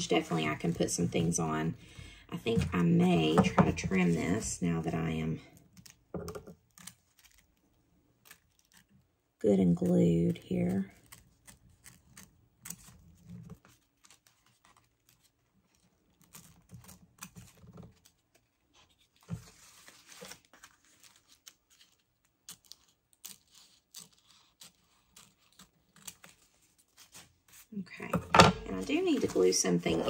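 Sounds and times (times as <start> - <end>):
paper rustling: 6.6 - 8.9, 10.3 - 27.7, 28.6 - 30.0.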